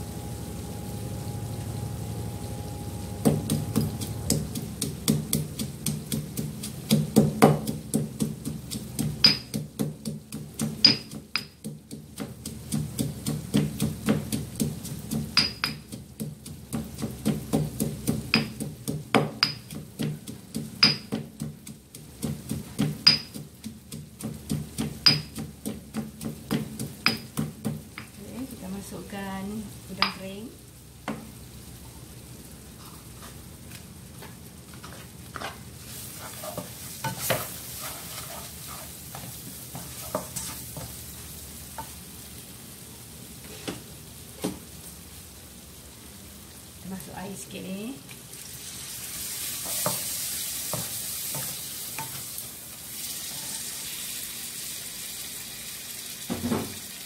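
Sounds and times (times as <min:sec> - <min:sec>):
frying sizzle: 0:00.0 - 0:57.0
pestle pounding in stone mortar: 0:03.2 - 0:28.2.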